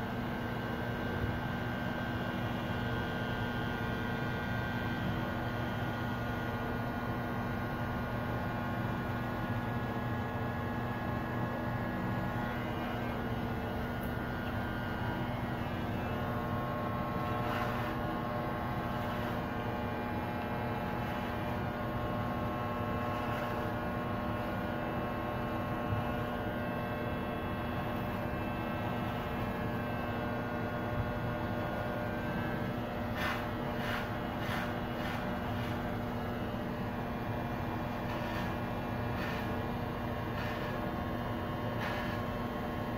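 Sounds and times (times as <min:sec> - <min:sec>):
electric hair clippers buzzing: 0:11.6 - 0:42.9.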